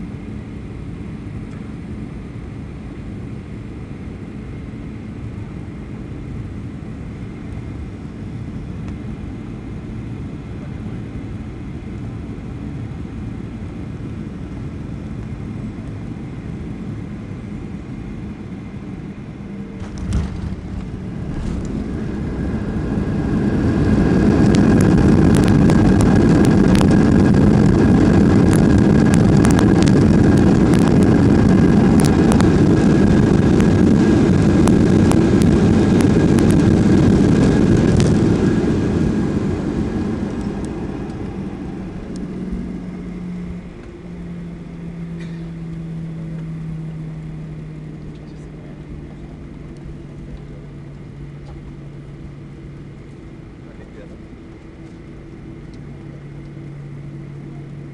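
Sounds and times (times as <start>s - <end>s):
airplane cabin noise: 0.0s - 57.9s
jet engines reverse thrust roar: 0.0s - 57.9s
landing gear touchdown thump: 19.8s - 22.4s.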